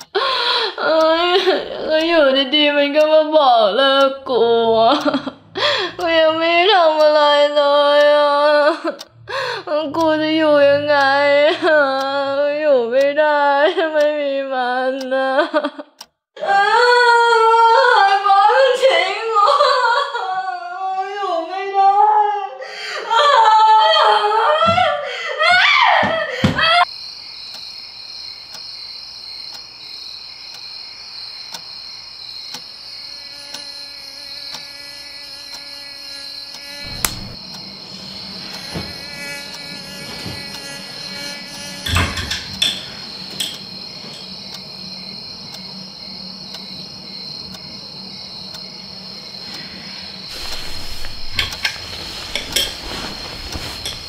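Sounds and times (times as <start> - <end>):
woman crying and sobbing: 0.1 - 2.8, 4.1 - 12.6, 13.2 - 26.9
night insects droning: 22.6 - 54.0
rustle: 50.3 - 54.0.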